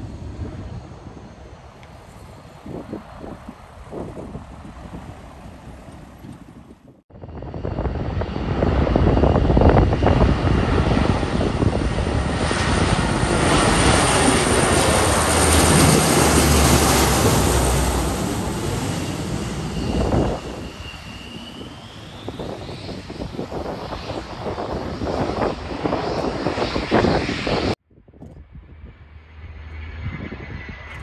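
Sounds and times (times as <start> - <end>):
turboprop aircraft droning overhead: 0.0 - 31.0
high whine: 7.2 - 27.8.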